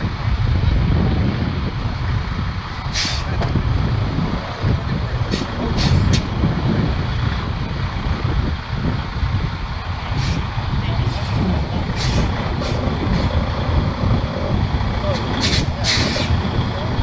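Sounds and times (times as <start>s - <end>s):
heavy truck engine running: 0.0s - 17.0s
short air hisses: 3.0s - 3.3s, 15.4s - 16.3s.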